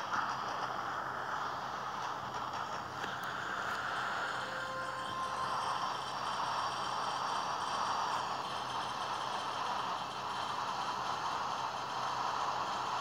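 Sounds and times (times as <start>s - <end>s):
grainy electronic noise: 0.0s - 11.7s
thin high tones: 3.1s - 9.6s.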